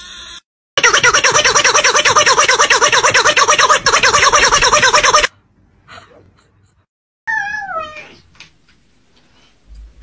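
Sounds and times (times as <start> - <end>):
loud warbling sound: 0.8 - 5.3.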